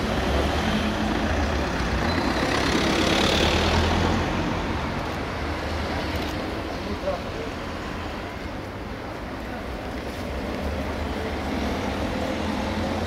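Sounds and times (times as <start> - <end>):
vehicle engine: 0.0 - 8.6
traffic noise: 0.0 - 13.0.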